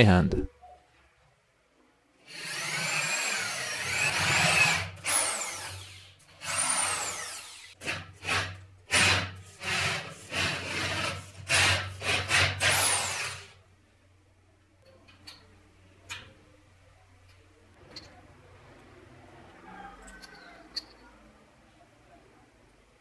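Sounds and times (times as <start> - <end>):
electric drill boring into metal: 2.3 - 7.7, 8.3 - 13.5.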